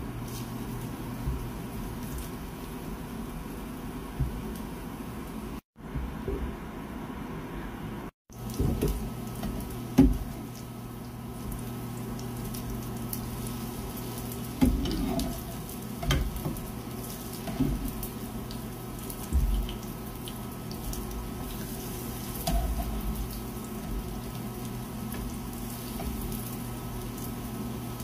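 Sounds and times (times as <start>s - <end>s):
patties sizzling in oil: 0.0s - 5.6s, 8.3s - 28.0s
spatula scraping pan: 14.6s - 16.4s.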